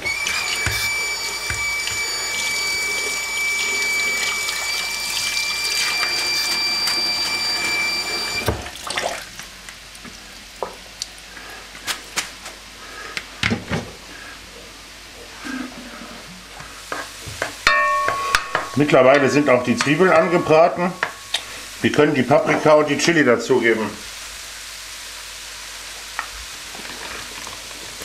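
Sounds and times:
high whistle: 0:00.0 - 0:08.6
kitchen tap running into colander: 0:00.0 - 0:09.6
tap shut off: 0:00.1 - 0:02.1.

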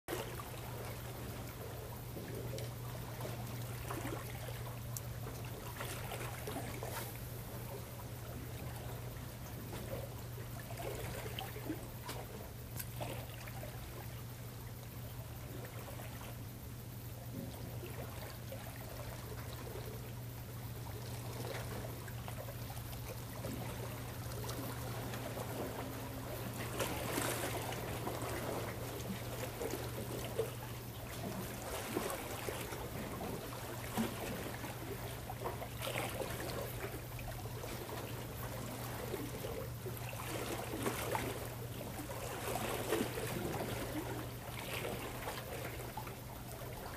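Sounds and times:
water lapping among rocks: 0:00.1 - 0:16.6, 0:17.4 - 0:46.9
low hum: 0:00.1 - 0:46.9
small ticks: 0:01.5 - 0:07.3, 0:10.9 - 0:16.4.

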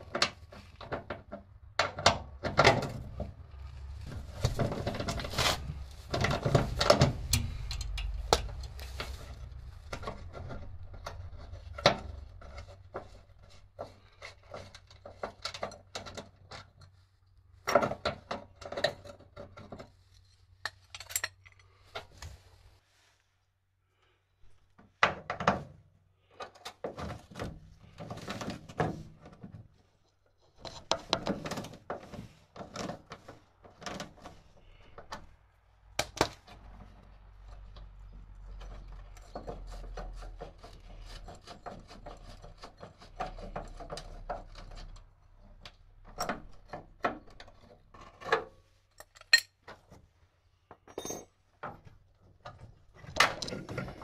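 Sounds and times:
wrench and metal parts clinking: 0:20.6 - 0:21.7, 0:49.0 - 0:49.6, 0:50.8 - 0:51.4.

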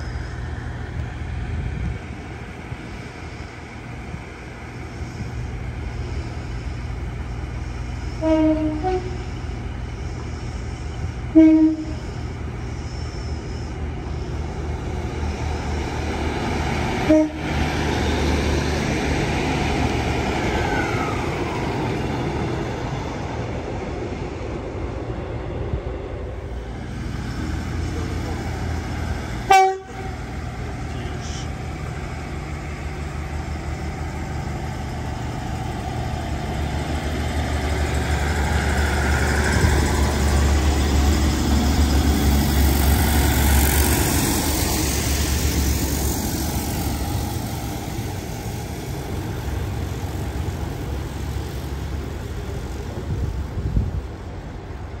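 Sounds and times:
diesel train engine rumbling: 0:00.0 - 0:55.0
loud pitched horn blast: 0:08.2 - 0:09.3, 0:11.3 - 0:12.1, 0:17.0 - 0:17.5, 0:29.5 - 0:30.1.

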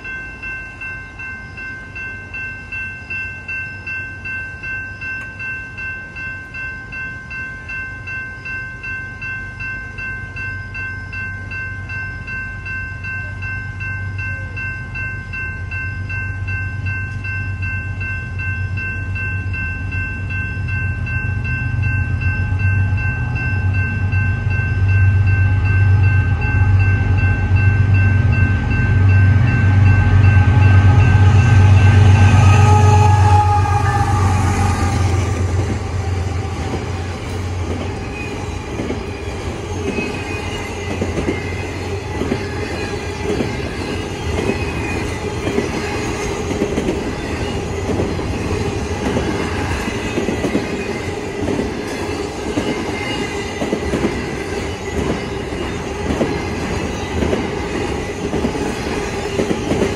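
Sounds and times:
electronic crossing bell ringing: 0:00.0 - 0:59.9
diesel locomotive rumble: 0:20.6 - 0:52.7.

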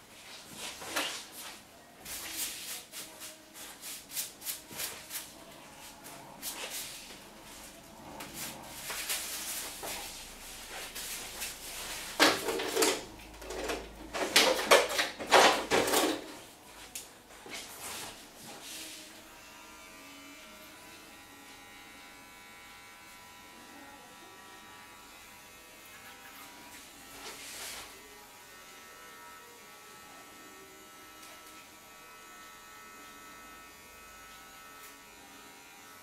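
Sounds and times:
towel rubbing hair: 0:00.2 - 0:12.2, 0:27.1 - 0:28.0.

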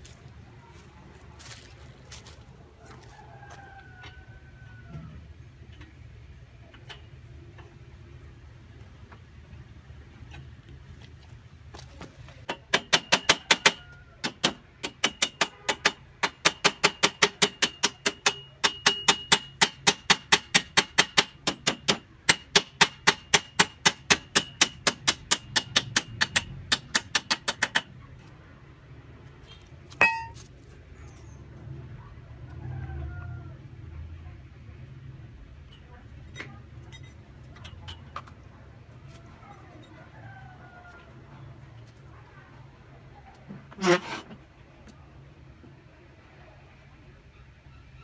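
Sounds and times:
hammer striking steel rail: 0:12.5 - 0:28.0, 0:30.0 - 0:30.5.

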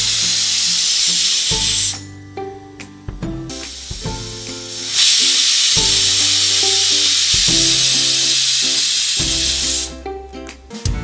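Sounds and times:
pressure cooker steam hiss: 0:00.0 - 0:02.0, 0:03.6 - 0:09.9.

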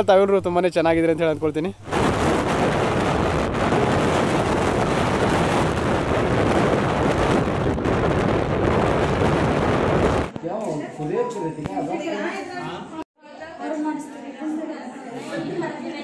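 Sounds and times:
wind rushing on microphone: 0:01.8 - 0:10.4.

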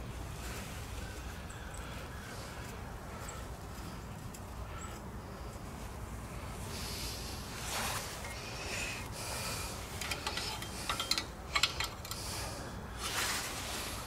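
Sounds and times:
small metal clicks and scraping: 0:08.0 - 0:08.4, 0:09.0 - 0:13.4.

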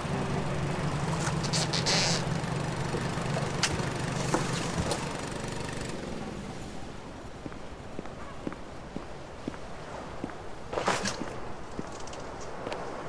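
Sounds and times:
vehicle engine idling: 0:00.0 - 0:07.3.

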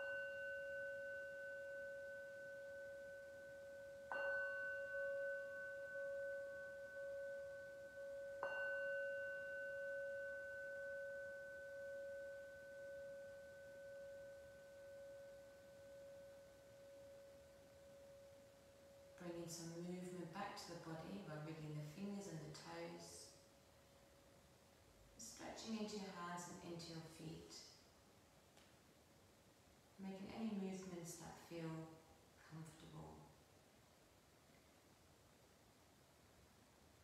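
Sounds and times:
metal singing bowl ringing: 0:00.0 - 0:19.3.

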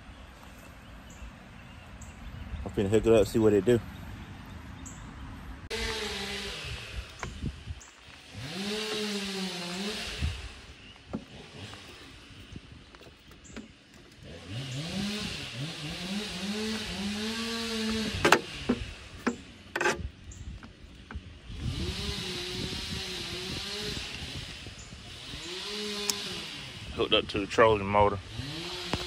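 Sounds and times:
electric motor whirring whine: 0:05.7 - 0:29.0.

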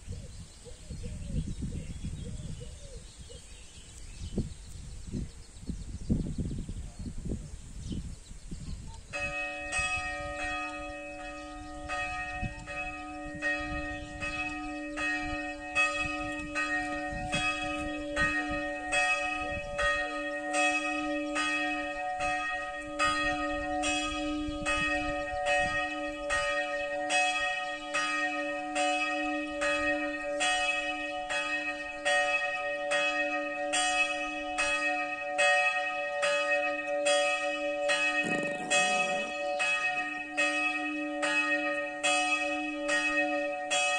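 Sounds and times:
church bell ringing: 0:09.1 - 0:43.9.

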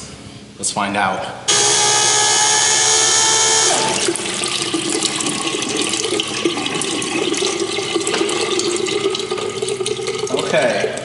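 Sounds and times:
electric pump whining: 0:01.5 - 0:10.3
water splashing into sink: 0:03.8 - 0:11.0.

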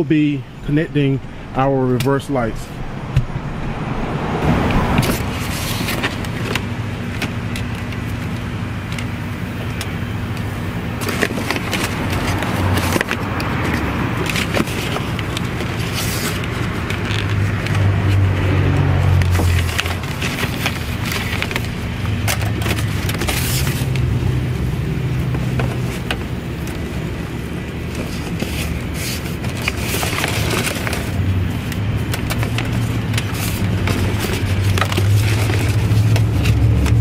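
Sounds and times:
steady low hum: 0:00.0 - 0:12.2.

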